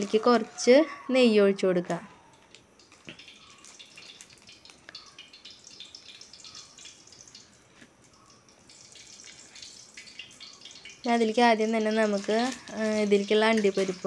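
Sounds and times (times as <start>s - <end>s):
ghee crackling in a pan: 0.0s - 0.7s, 1.8s - 14.0s.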